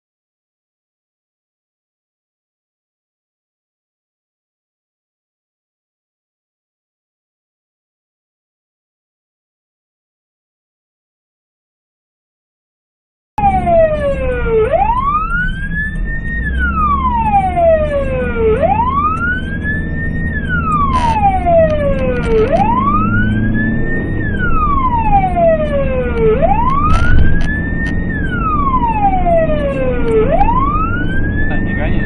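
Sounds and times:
emergency siren wailing: 13.4 - 32.0
road traffic rumble: 13.4 - 32.0.

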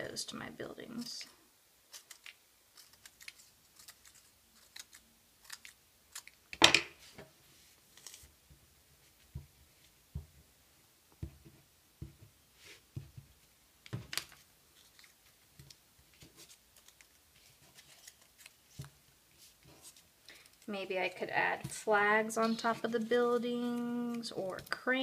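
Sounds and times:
scissors snipping paper: 1.9 - 6.4.

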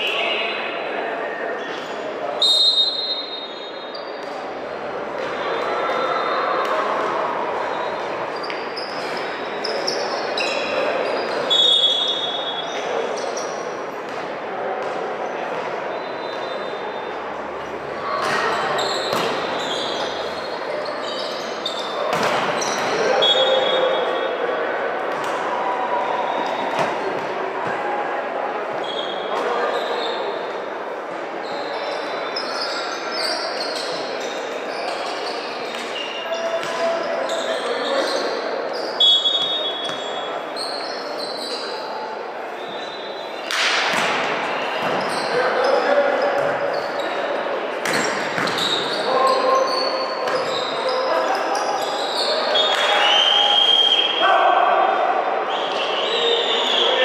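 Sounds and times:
crowd murmur: 0.0 - 57.0
echoing hubbub of voices: 0.0 - 57.0
shoes squeaking on court: 14.8 - 23.7, 31.4 - 41.8, 42.6 - 52.9.

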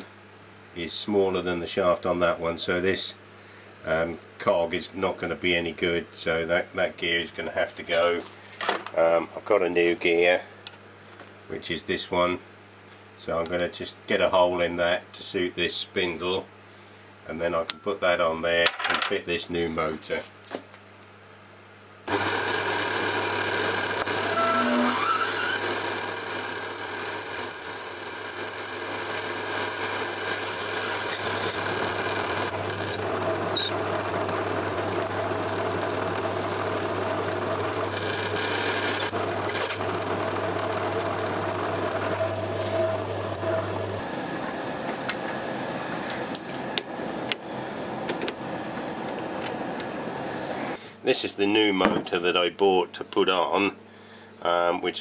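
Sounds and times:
high thin drill whine: 22.1 - 44.9
lathe motor hum with cutting: 22.1 - 50.8.

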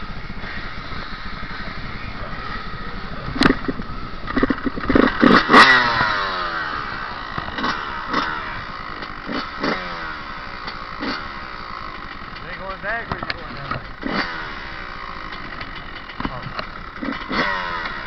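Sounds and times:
dirt bike engine revving: 0.0 - 18.0
sharp knocks and clatter: 3.4 - 6.2, 15.2 - 18.0.

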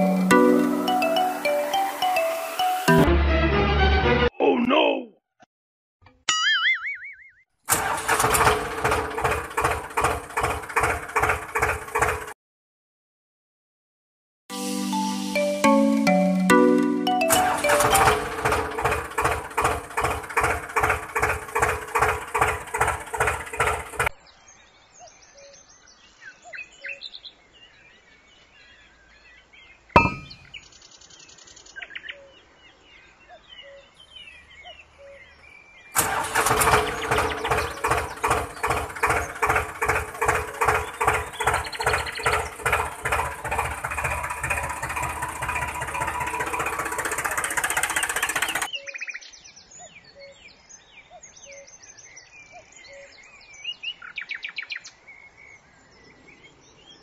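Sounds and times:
birds chirping: 0.0 - 3.0, 14.8 - 57.0
pulsing engine-like sound: 17.3 - 24.1, 36.0 - 48.7.

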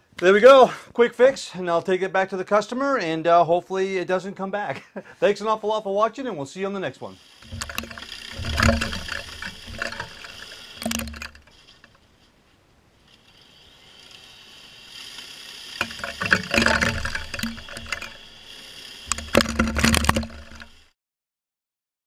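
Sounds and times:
swishing snow spray: 13.1 - 15.8, 18.2 - 19.1
snow thrower humming: 14.0 - 20.7.

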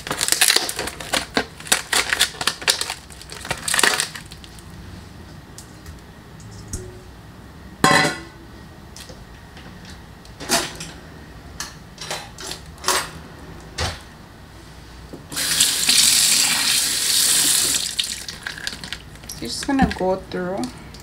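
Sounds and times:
dishes and utensils clinking: 7.8 - 8.4.

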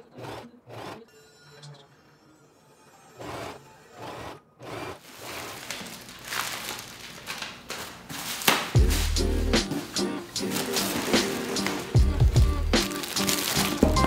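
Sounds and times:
sewing machine stitching: 0.0 - 1.1, 3.2 - 5.5
plastic and cardboard crinkling: 5.0 - 14.0
music: 8.7 - 14.0.

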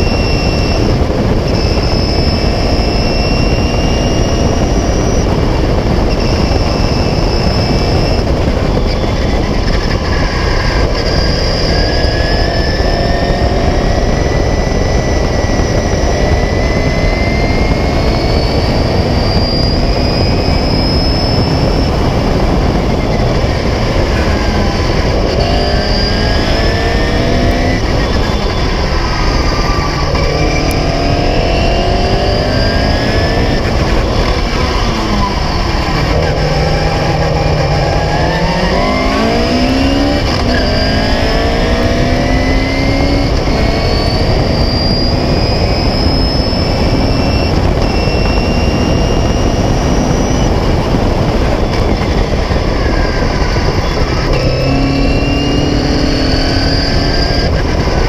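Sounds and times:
racing car engine running hard: 0.0 - 58.0
wind rushing: 0.0 - 58.0.

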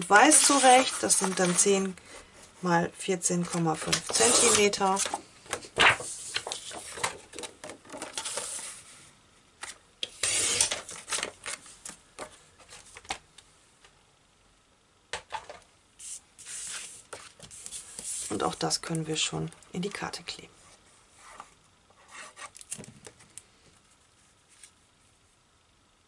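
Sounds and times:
paper rustling: 0.2 - 2.0, 3.4 - 8.8.

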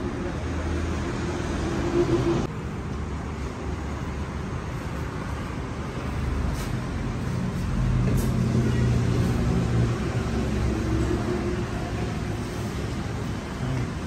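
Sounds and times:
passing vehicle engine hum: 0.0 - 14.0
road traffic rumble: 0.0 - 14.0.

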